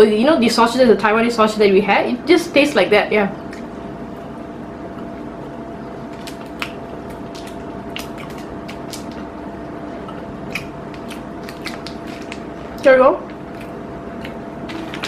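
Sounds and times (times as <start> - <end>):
steady low hum: 0.0 - 15.0
chewing jerky: 6.1 - 9.3, 10.0 - 15.0
plastic wrapper crinkling: 10.9 - 12.8, 13.4 - 15.0.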